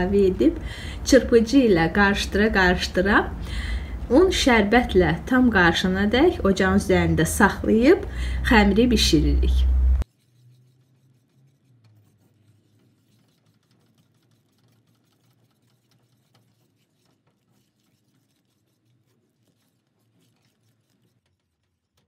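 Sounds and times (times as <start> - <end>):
faint low hum: 0.0 - 12.7
whisk scraping metal pot: 10.0 - 22.0.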